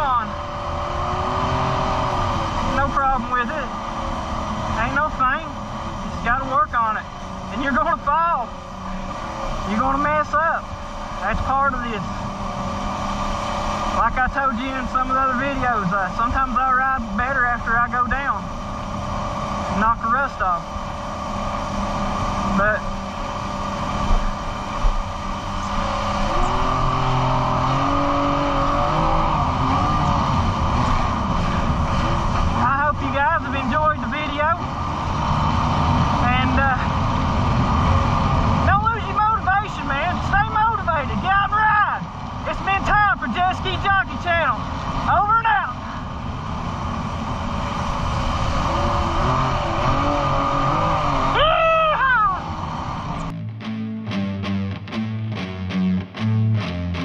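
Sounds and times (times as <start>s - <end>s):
rushing wind: 0.0s - 53.3s
jet ski engine running: 0.0s - 53.4s
high whine: 0.0s - 57.0s.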